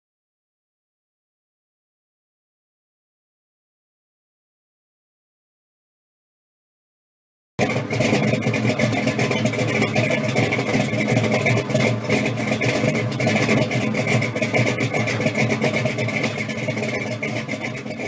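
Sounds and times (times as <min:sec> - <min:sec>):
car engine idling: 0:07.6 - 0:18.0.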